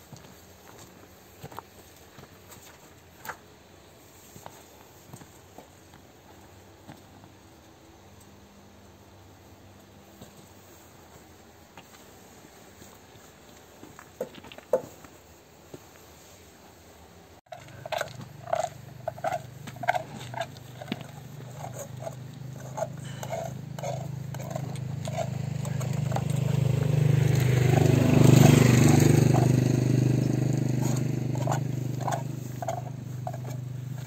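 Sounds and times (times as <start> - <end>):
low engine hum: 17.5 - 34.0.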